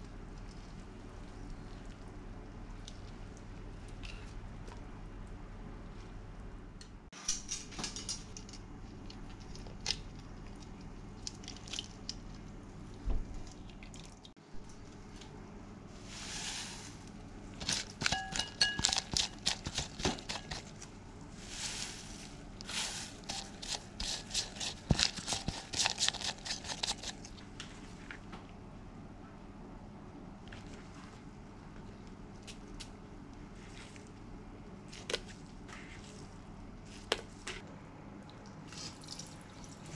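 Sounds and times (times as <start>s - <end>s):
sharp clinks against metal pot: 18.0s - 19.1s.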